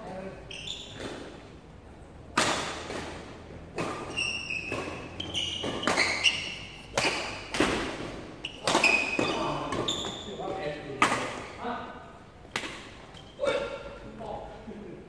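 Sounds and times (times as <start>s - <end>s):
shoes squeaking on court floor: 0.0s - 1.6s, 3.8s - 11.6s, 12.8s - 13.8s
rackets hitting shuttlecock: 2.3s - 10.3s, 10.9s - 11.6s, 12.4s - 13.9s.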